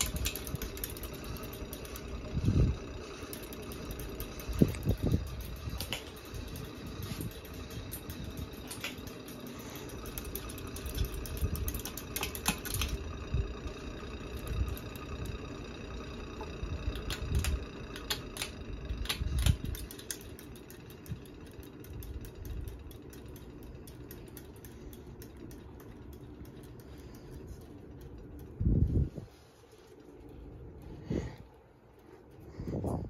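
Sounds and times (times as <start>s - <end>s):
sharp clicks: 0.0s - 13.2s, 16.4s - 28.9s
ceiling fan motor hum: 0.0s - 33.0s.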